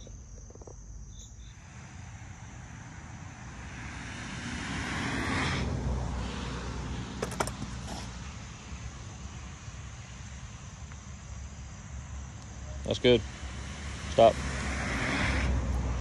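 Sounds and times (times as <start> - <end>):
car passing: 1.6 - 9.0, 12.8 - 16.0.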